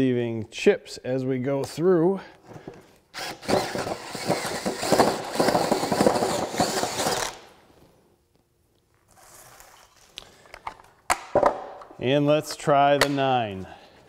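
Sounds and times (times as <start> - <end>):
drill boring through wood: 3.2 - 7.5.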